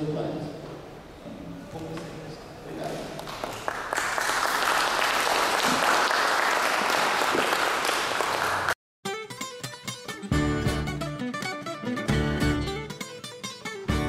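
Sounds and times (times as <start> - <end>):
audience applauding: 3.2 - 8.8
music: 9.0 - 14.0.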